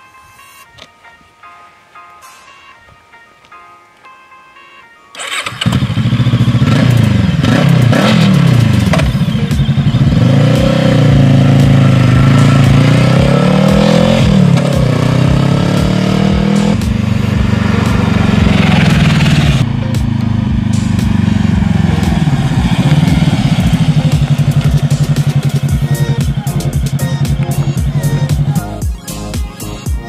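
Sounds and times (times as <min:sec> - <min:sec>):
motorcycle engine accelerating: 0:05.2 - 0:28.9.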